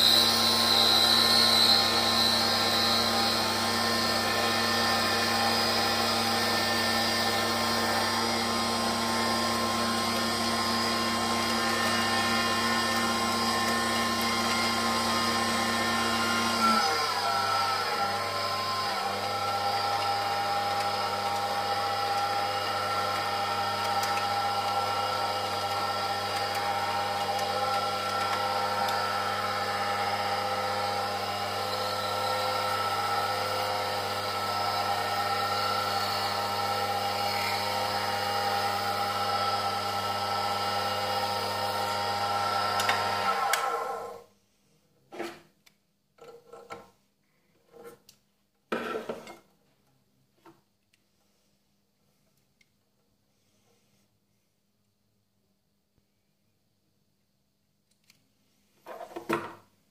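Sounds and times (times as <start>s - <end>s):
metal lathe motor humming: 10.0s - 44.1s.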